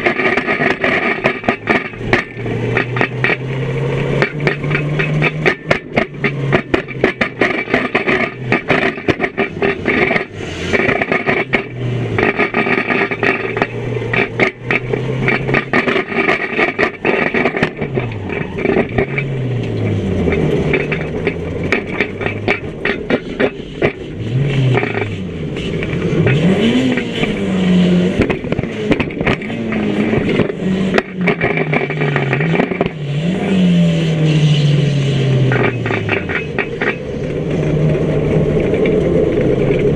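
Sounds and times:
bodywork clattering and rattling: 0:00.0 - 0:27.4, 0:28.2 - 0:33.5, 0:35.5 - 0:39.9
car engine revving: 0:00.0 - 0:39.9.

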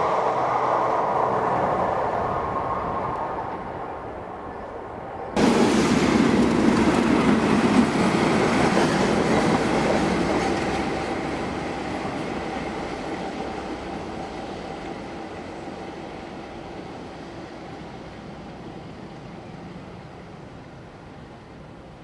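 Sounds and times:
diesel locomotive engine: 0:00.0 - 0:22.0
train wheels on rails: 0:05.4 - 0:22.0.

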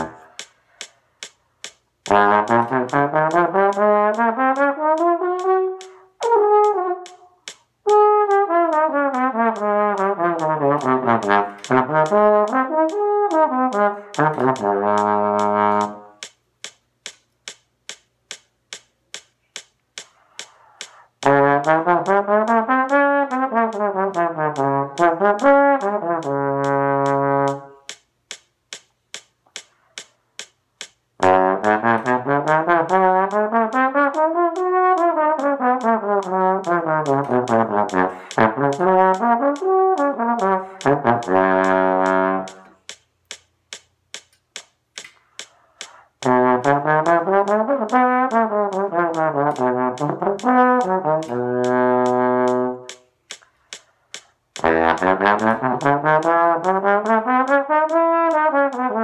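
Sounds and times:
trombone playing: 0:00.0 - 0:00.4, 0:02.1 - 0:16.2, 0:21.2 - 0:27.9, 0:31.2 - 0:42.8, 0:46.2 - 0:53.0, 0:54.6 - 0:59.0
metronome clicking: 0:00.0 - 0:59.0.

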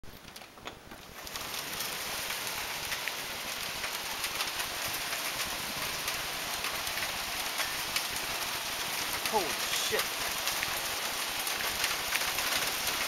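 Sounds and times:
heavy hail pelting down: 0:00.1 - 0:13.0.

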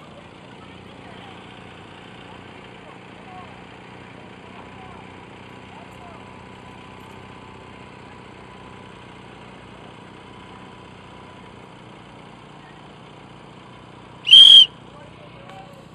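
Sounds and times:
outboard motor running: 0:00.0 - 0:15.9
shrill whistle blast: 0:14.3 - 0:14.7.

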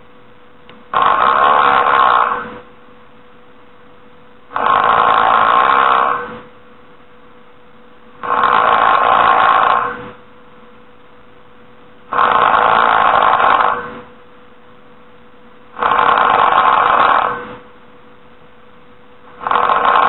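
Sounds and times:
faint steady tone: 0:02.5 - 0:05.2, 0:06.2 - 0:09.4, 0:10.1 - 0:15.8, 0:17.5 - 0:20.0.

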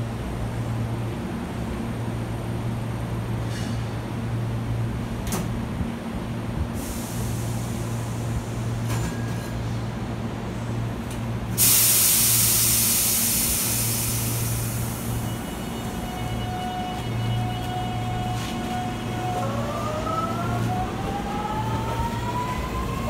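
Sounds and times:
air brakes hissing: 0:03.4 - 0:04.0, 0:06.8 - 0:09.8, 0:11.5 - 0:17.1
electric train humming: 0:10.3 - 0:23.0.

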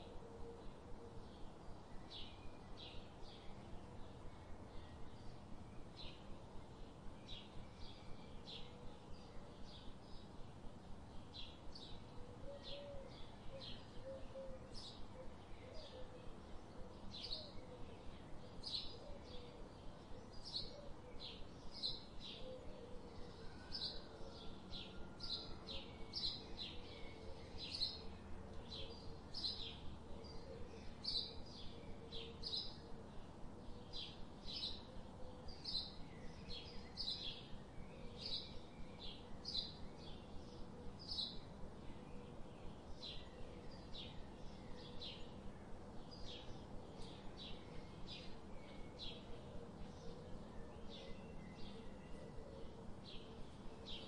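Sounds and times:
bird chirping: 0:11.2 - 0:54.0.

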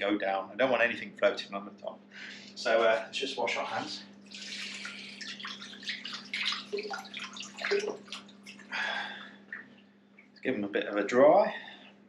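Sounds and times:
steady low hum: 0:00.0 - 0:12.0
water splashing in a sink: 0:03.7 - 0:10.4.

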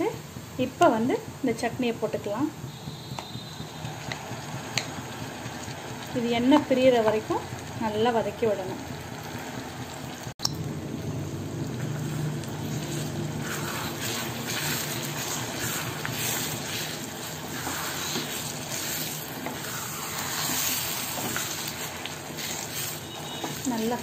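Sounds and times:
paste sizzling in oil: 0:11.6 - 0:24.0
wooden spatula stirring: 0:11.8 - 0:24.0.

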